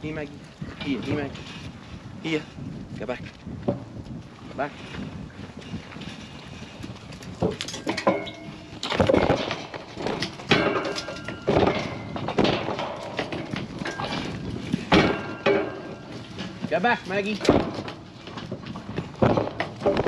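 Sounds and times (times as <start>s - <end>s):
bodies thumping metal panels: 7.8s - 20.0s.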